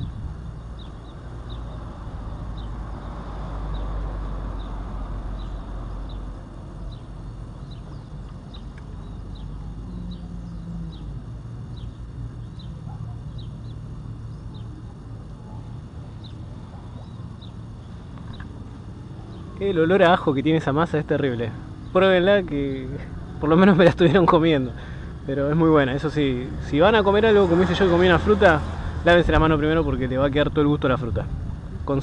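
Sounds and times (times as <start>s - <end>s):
bird chirping: 0.0s - 23.8s
low rumble of wind: 0.0s - 32.0s.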